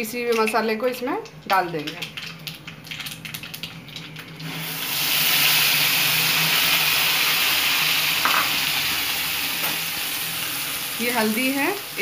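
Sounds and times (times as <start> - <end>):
seeds crackling in hot oil: 0.0 - 12.0
paste sizzling loudly in oil: 4.4 - 12.0.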